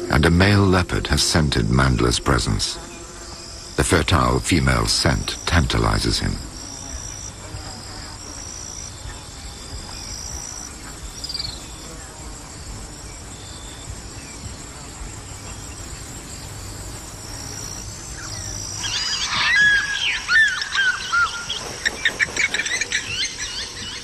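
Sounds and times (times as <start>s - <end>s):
insects chirping: 0.0s - 24.0s
steady background hum: 0.0s - 24.0s
rapid whistled bird calls: 17.4s - 24.0s.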